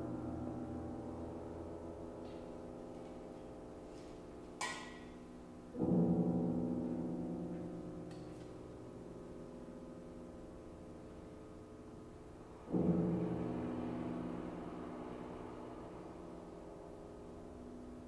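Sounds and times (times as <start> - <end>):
grand piano low chords: 0.0 - 18.0.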